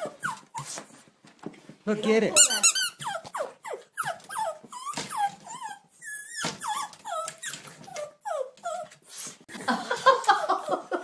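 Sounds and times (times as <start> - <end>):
small dog whining and yipping: 0.0 - 1.1, 2.5 - 9.4.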